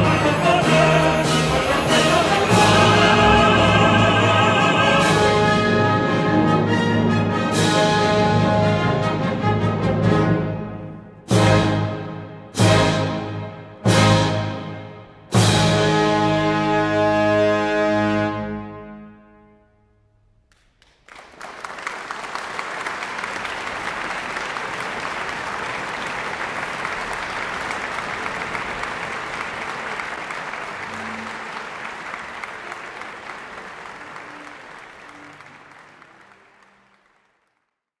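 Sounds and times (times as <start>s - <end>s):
orchestra chord: 0.0s - 9.0s
audience applause: 20.5s - 37.8s.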